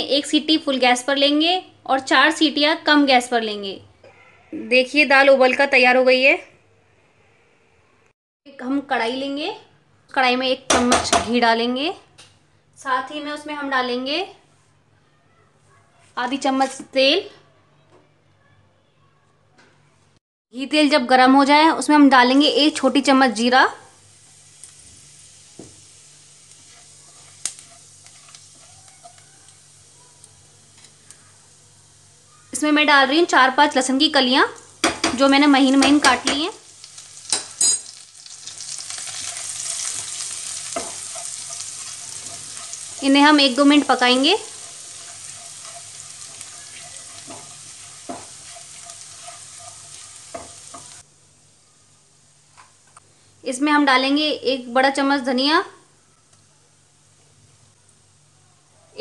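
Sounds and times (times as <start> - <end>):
seeds sizzling in oil: 21.8 - 52.6
spatula knocking against pan: 34.8 - 35.2.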